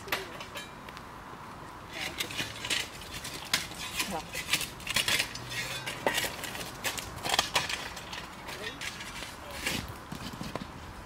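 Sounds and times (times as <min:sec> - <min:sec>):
charcoal and slag clinking: 0:00.0 - 0:00.8, 0:01.9 - 0:09.9
metal bar scraping and knocking: 0:01.9 - 0:10.3.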